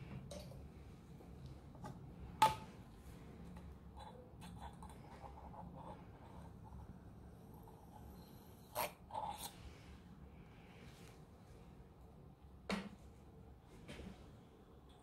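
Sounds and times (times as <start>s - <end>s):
faint handling sounds: 9.5s - 12.1s.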